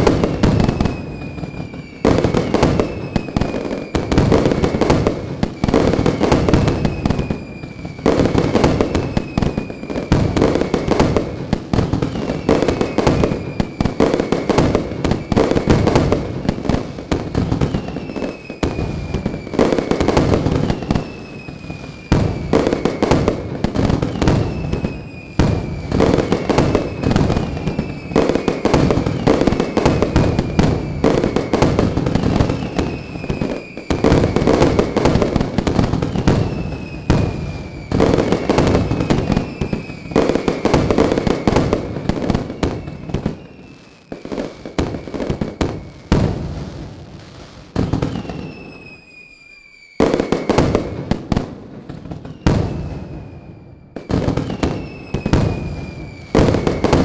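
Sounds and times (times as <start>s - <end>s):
whistling firework shell: 0.0s - 47.0s, 47.7s - 57.0s
fireworks crackling and popping: 0.0s - 57.0s.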